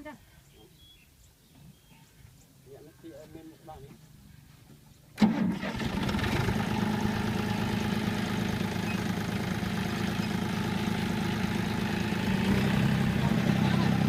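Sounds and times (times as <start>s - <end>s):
tractor engine under load: 5.2s - 14.0s.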